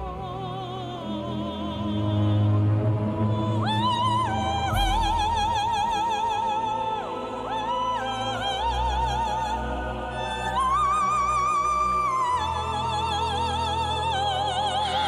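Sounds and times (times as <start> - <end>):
low orchestral accompaniment: 0.0 - 15.0.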